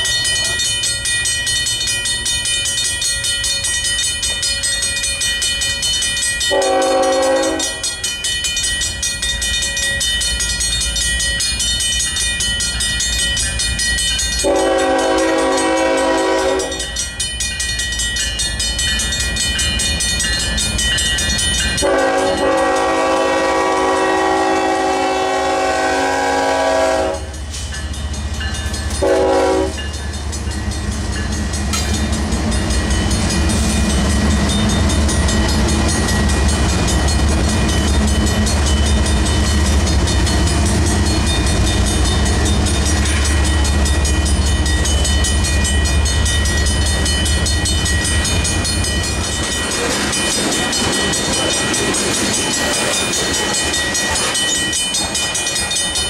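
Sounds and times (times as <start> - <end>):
crossing warning bell ringing: 0.0 - 56.0
train wheels on rail: 0.0 - 56.0
train horn blasts: 6.5 - 7.9, 14.4 - 16.8, 21.8 - 27.4, 29.0 - 29.8.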